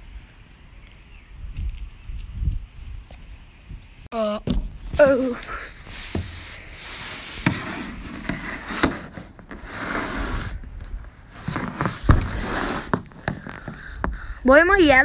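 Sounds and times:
microphone rubbing on surface: 0:05.8 - 0:14.2.

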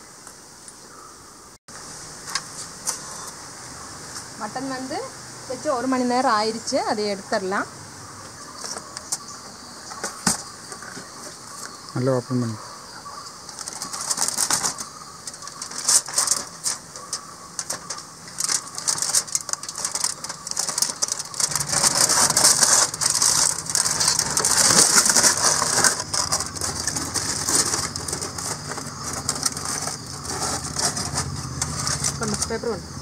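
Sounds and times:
aluminium foil crinkling: 0:13.4 - 0:32.6.

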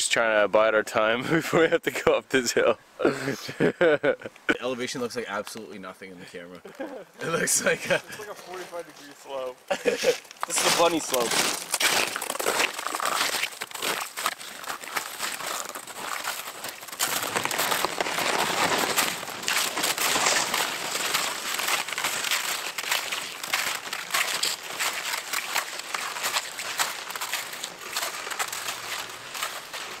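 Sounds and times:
toboggans scraping over snow: 0:09.7 - 0:30.0
boots crunching on snow: 0:09.8 - 0:30.0.

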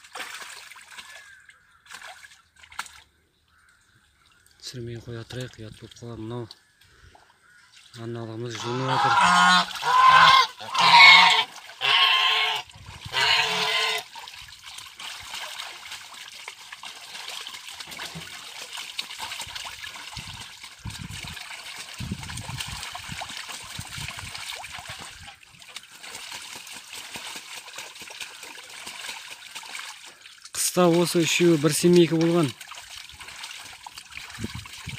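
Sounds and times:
water splashing: 0:00.0 - 0:34.9
geese honking: 0:08.5 - 0:14.0.

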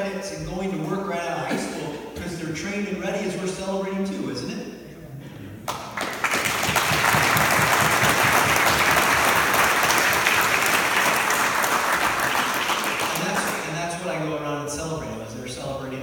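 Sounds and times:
audience applauding: 0:05.6 - 0:13.7.

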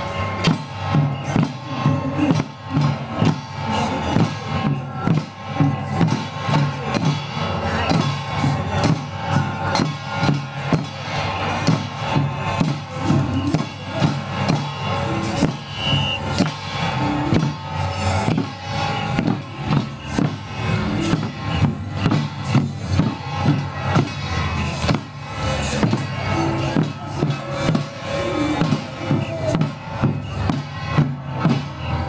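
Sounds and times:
hand drums and cymbals beating: 0:00.0 - 0:32.0.

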